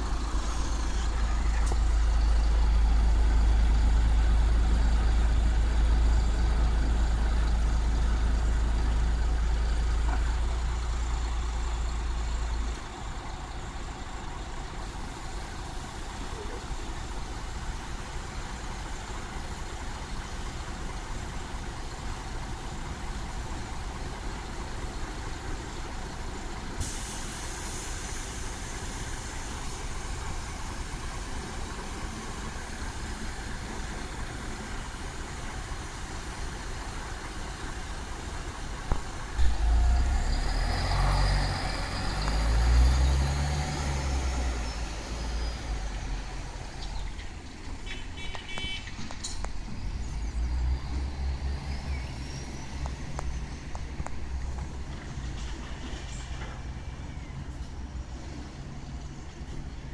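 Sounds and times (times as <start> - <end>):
bus engine: 0.0 - 59.9.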